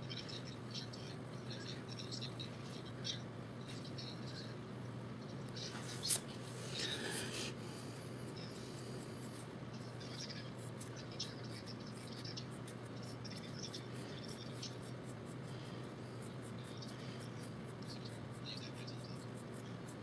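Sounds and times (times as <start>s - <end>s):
pencil scratching on paper: 8.6s - 20.0s.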